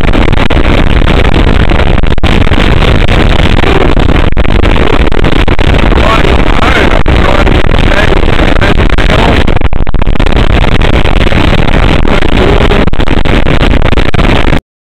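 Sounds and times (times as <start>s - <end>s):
wind noise: 0.0s - 14.6s.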